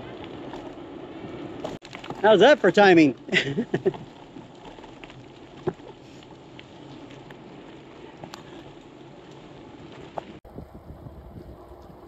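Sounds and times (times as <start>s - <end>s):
rumbling wind buffeting: 0.0s - 12.0s
bicycle tyre hiss on wet road: 5.8s - 12.0s
wind on microphone: 10.4s - 12.0s.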